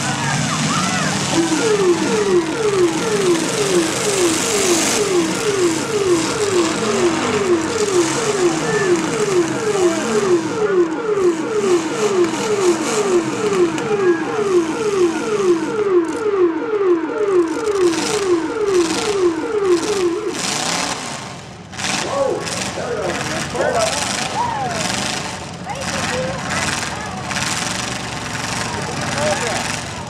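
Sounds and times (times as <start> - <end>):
car engines running: 0.0 - 30.0
siren-like falling tone: 0.6 - 20.9.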